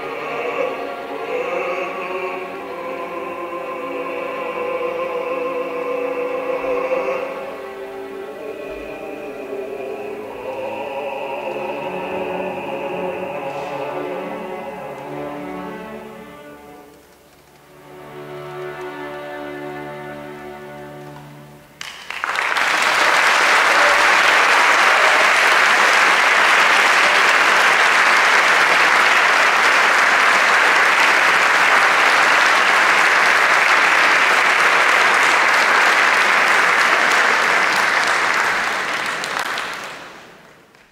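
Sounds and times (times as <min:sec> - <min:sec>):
audience applauding: 0:21.8 - 0:40.9.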